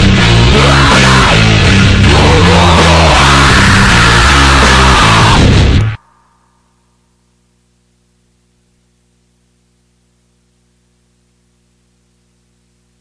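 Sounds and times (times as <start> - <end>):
faint low hum with hiss: 6.1 - 13.0.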